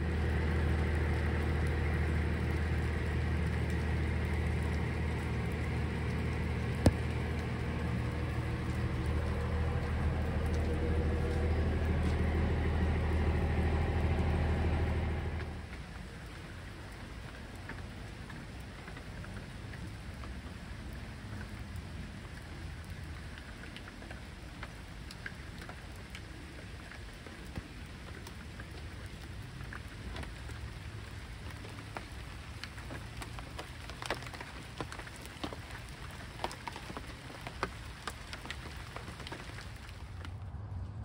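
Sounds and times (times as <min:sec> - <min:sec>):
steady low hum: 0:00.0 - 0:17.6
rain falling: 0:00.0 - 0:41.0.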